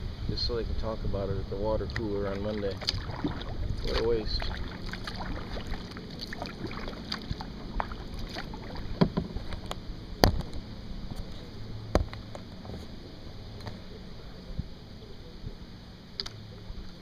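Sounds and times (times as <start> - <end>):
paddle water drips and splashes: 1.8 - 9.8.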